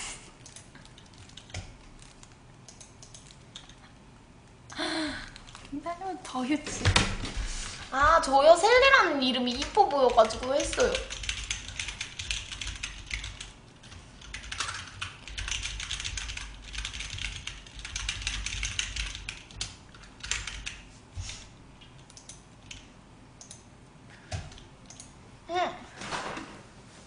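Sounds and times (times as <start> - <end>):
computer keyboard typing: 0.4 - 3.9, 8.0 - 23.7, 24.3 - 25.1.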